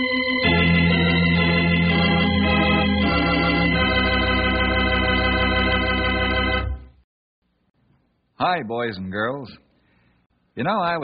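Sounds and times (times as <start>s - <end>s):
organ chords: 0.0s - 7.0s.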